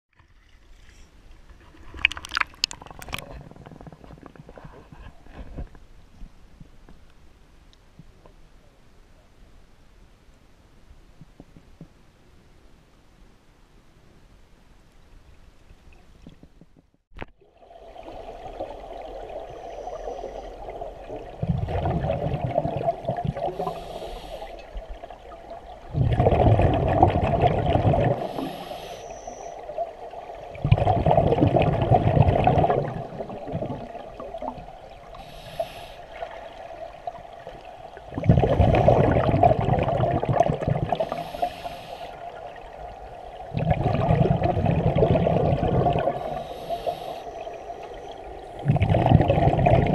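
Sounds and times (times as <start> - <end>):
bubbling exhalations underwater: 20.7 - 23.8, 25.8 - 28.6, 30.5 - 35.2, 38.0 - 41.4, 43.4 - 49.9
regulator hissing inhalation: 23.5 - 24.7, 28.2 - 29.6, 35.1 - 36.2, 41.0 - 42.3, 46.0 - 48.0.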